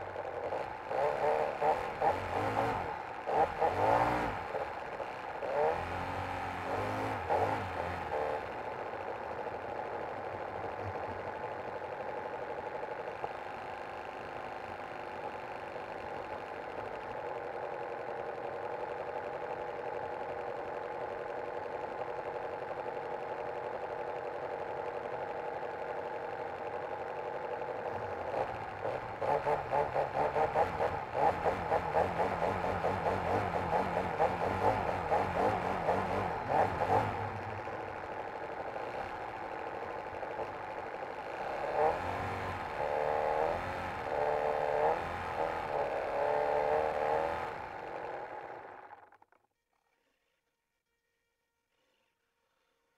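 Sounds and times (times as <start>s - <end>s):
model plane engine: 0.0s - 52.9s.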